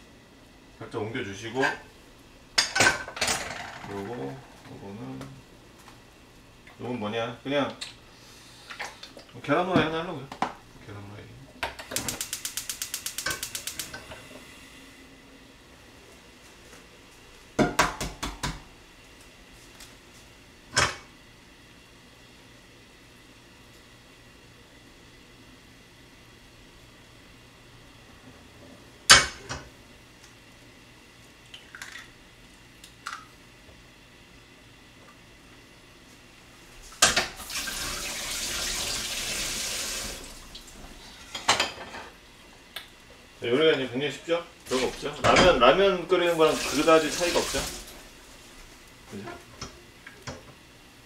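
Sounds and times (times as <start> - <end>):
water running onto hands: 46.3 - 47.9.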